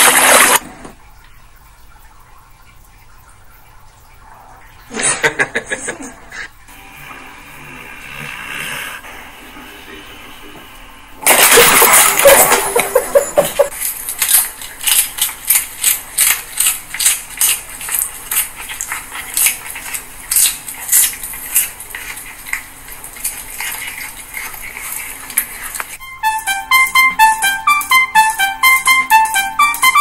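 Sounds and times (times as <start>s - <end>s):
cat crunching lettuce: 13.7s - 26.0s.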